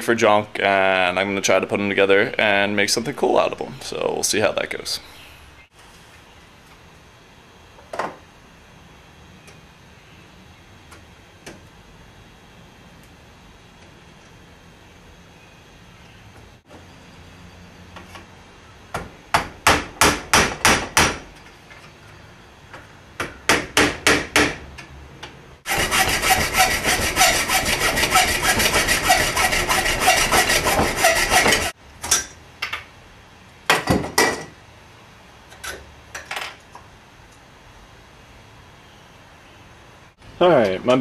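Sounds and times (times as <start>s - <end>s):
scraping on metal: 25.7s - 31.8s.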